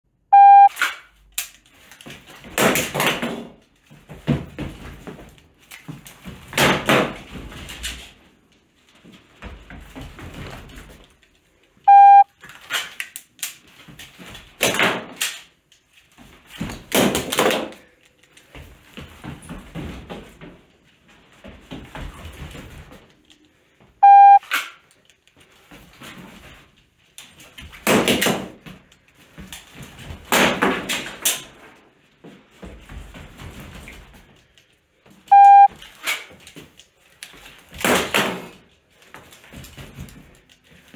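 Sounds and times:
shot timer beeping: 0:00.3 - 0:00.7, 0:11.9 - 0:12.3, 0:24.0 - 0:24.4, 0:35.3 - 0:35.7.

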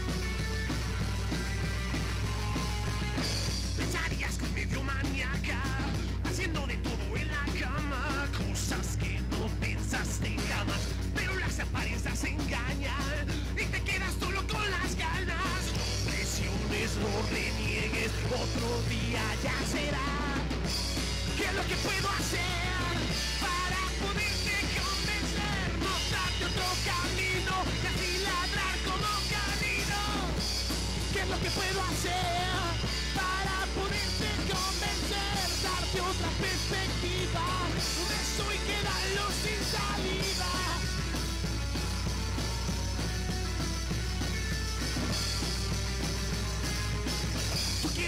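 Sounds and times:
rock band playing: 0:00.0 - 0:48.0
person singing: 0:02.2 - 0:20.6, 0:21.2 - 0:30.4, 0:31.0 - 0:41.1.

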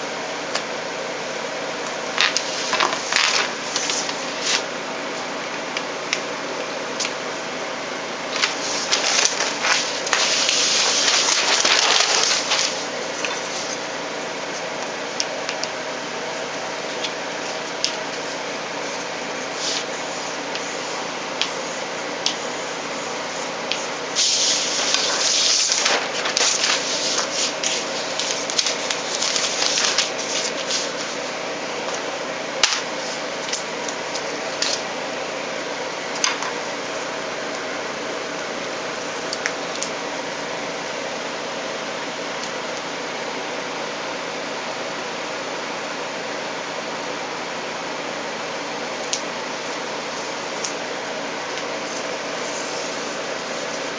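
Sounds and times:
tape and paper crackling: 0:01.8 - 0:06.3, 0:08.2 - 0:15.8, 0:16.6 - 0:22.5, 0:23.2 - 0:35.0, 0:36.0 - 0:41.0.

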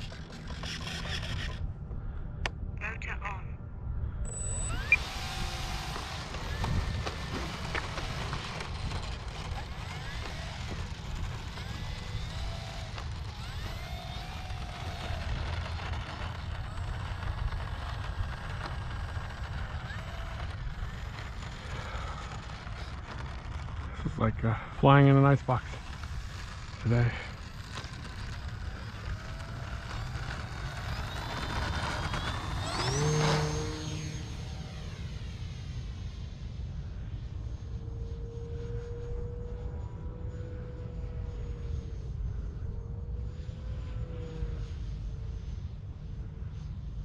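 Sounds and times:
electric plane motor whining: 0:00.0 - 0:01.6, 0:04.3 - 0:36.4
wind buffeting microphone: 0:04.8 - 0:21.1.

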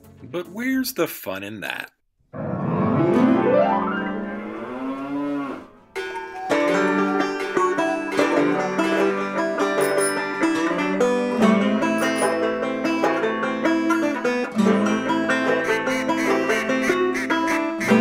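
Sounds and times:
lively plucked-string music: 0:06.0 - 0:18.0.

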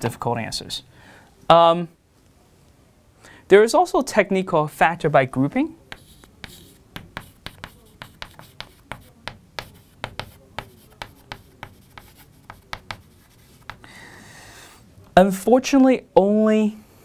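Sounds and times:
chalk tapping and scraping on blackboard: 0:05.9 - 0:13.9.

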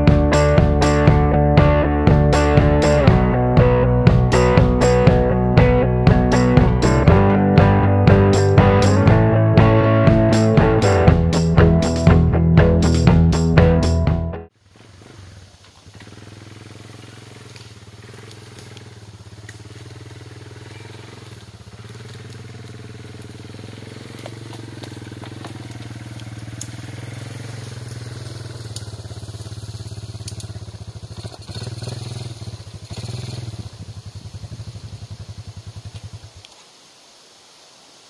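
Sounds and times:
quad bike engine running: 0:00.0 - 0:36.4
sharp clicks and crackles: 0:17.4 - 0:27.0, 0:27.6 - 0:31.6.

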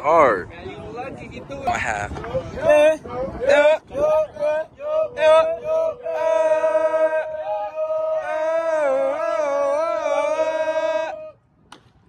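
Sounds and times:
voices singing a chant: 0:02.2 - 0:11.4.

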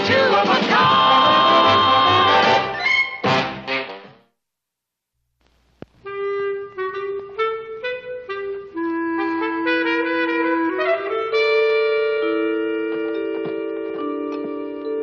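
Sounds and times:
click: 0:05.4 - 0:06.0
wind instrument melody: 0:06.0 - 0:15.0.

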